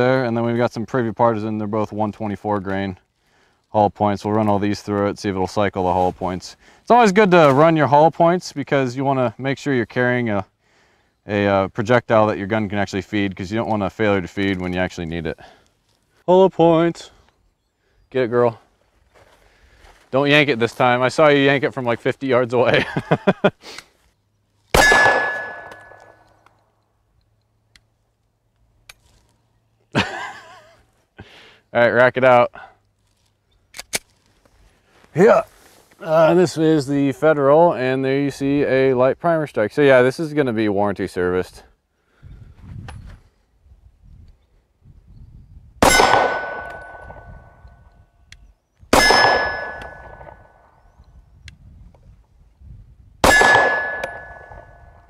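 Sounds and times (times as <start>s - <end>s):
pistol shot: 24.8s - 26.2s, 45.8s - 47.3s, 48.9s - 50.5s, 53.2s - 54.8s
steel target ringing: 24.8s - 26.3s, 45.8s - 47.5s, 49.0s - 50.4s, 53.2s - 55.0s
man's voice: 35.2s - 41.6s.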